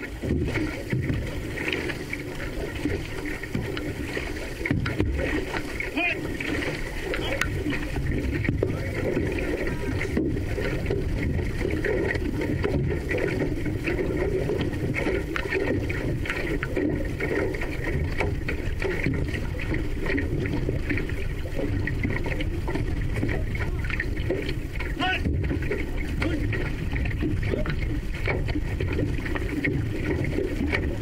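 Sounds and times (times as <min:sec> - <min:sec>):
paddle splashes: 0:00.0 - 0:31.0
steady low rumble: 0:00.0 - 0:31.0
water rushing along hull: 0:00.0 - 0:31.0.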